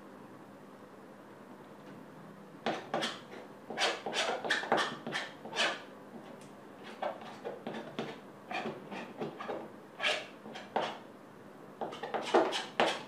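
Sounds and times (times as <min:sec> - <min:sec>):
palette knife scraping canvas: 0:02.7 - 0:05.9, 0:06.8 - 0:11.0, 0:11.9 - 0:13.0.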